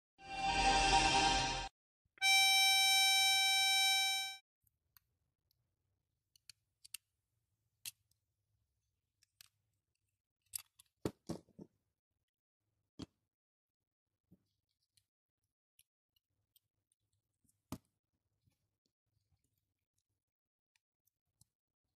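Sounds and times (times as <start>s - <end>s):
steady high note: 0.2s - 4.4s.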